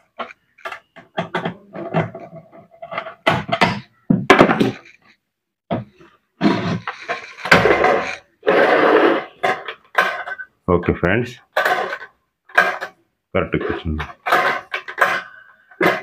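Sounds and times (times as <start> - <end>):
metal rattling and scraping: 6.4 - 10.5.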